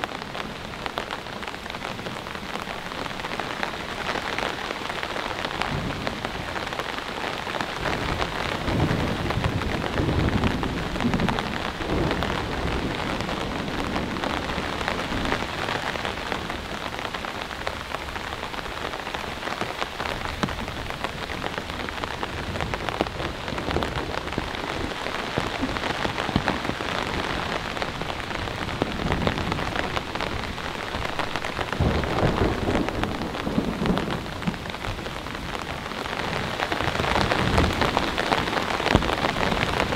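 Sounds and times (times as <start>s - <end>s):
heavy rain pattering: 0.0s - 39.9s
low rolls of thunder: 7.8s - 15.7s, 21.7s - 39.9s.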